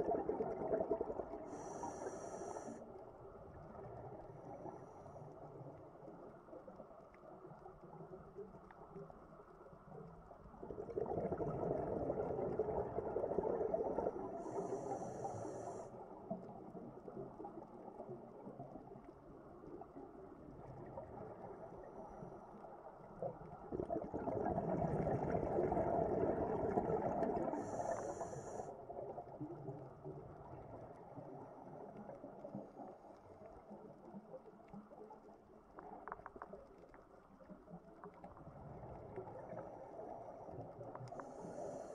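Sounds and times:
exhaled bubbles rushing: 0:00.0 - 0:01.5, 0:10.6 - 0:14.4, 0:23.4 - 0:27.8.

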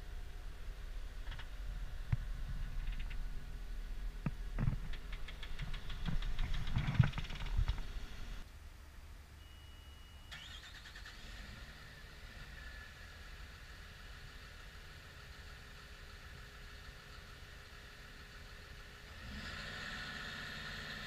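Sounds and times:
low rumble: 0:00.0 - 0:08.4
knocks and clicks of handling: 0:04.2 - 0:07.9.

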